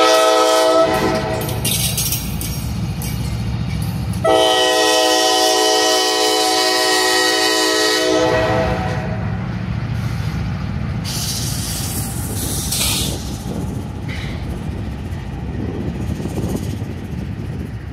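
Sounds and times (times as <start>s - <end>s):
train air horn chord: 0.0s - 1.5s, 4.2s - 9.3s
train wheels rumbling on rail: 0.0s - 17.9s
loud hiss: 11.0s - 13.7s.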